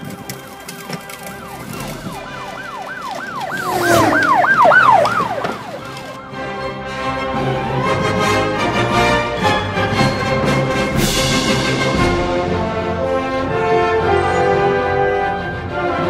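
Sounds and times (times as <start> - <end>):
music: 0.0 - 3.2, 5.6 - 16.0
emergency vehicle siren: 0.0 - 11.2.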